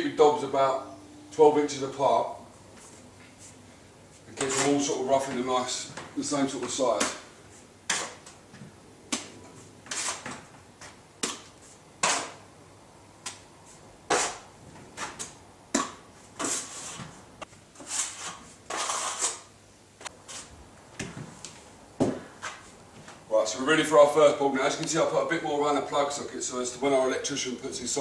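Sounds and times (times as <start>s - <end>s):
trowel scraping: 4.3s - 5.4s, 9.8s - 10.4s, 14.1s - 14.4s, 16.4s - 17.1s, 17.7s - 19.5s.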